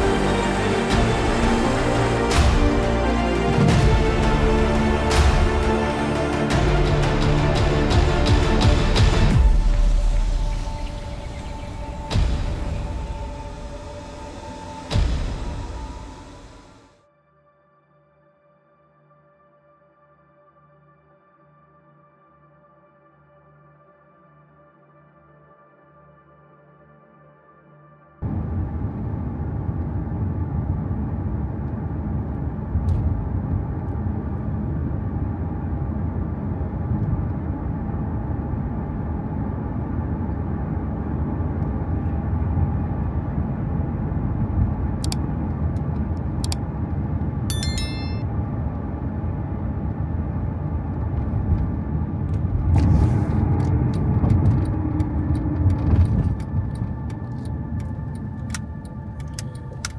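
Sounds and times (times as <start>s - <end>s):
vehicle road noise rumble: 28.2s - 47.5s, 48.3s - 59.9s.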